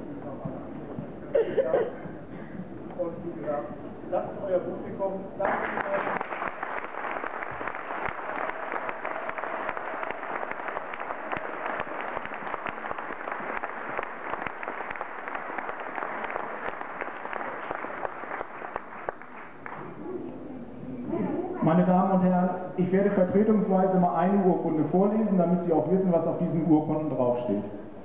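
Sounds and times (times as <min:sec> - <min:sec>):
audience applauding: 0:05.4 - 0:20.0.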